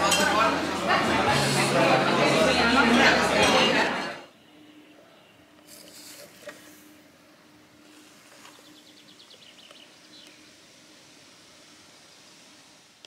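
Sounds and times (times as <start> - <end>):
faint background hiss: 4.3 - 13.0.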